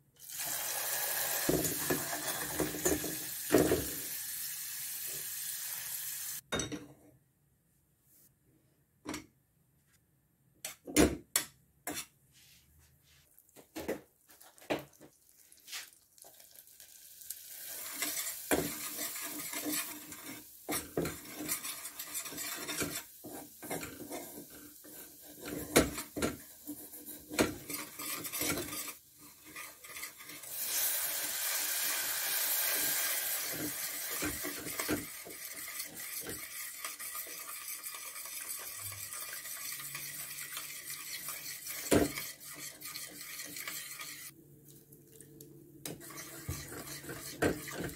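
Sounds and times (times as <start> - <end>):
butter and flour sizzling: 0.2 - 6.4, 13.3 - 44.4, 45.9 - 47.9
milk hissing in hot pan: 0.2 - 6.4, 15.6 - 25.9, 30.1 - 42.5
metal spoon scraping a pot: 17.7 - 30.6, 33.4 - 44.4, 45.9 - 47.9.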